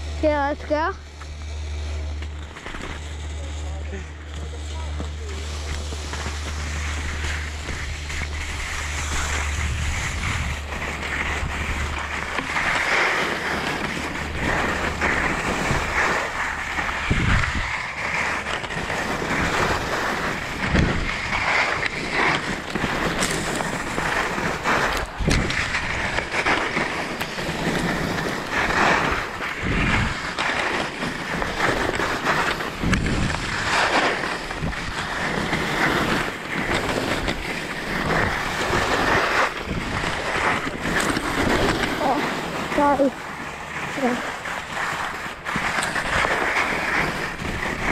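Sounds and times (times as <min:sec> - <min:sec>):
skis scraping through snow: 0:00.0 - 0:47.9
wind buffeting microphone: 0:05.1 - 0:26.3, 0:27.4 - 0:47.9.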